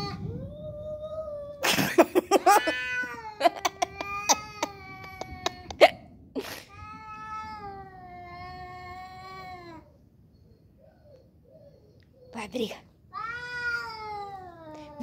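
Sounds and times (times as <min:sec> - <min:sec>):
cats yowling: 0:00.0 - 0:05.9, 0:06.7 - 0:10.1, 0:13.1 - 0:15.0.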